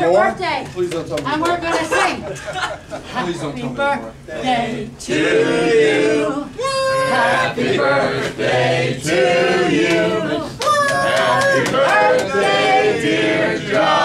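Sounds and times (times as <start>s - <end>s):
people singing unaccompanied: 4.3s - 14.0s.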